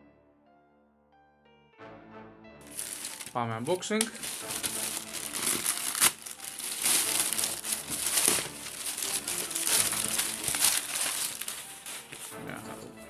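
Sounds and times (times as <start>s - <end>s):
plastic bag crinkling: 2.7s - 12.4s
knife slitting plastic: 4.0s - 12.3s.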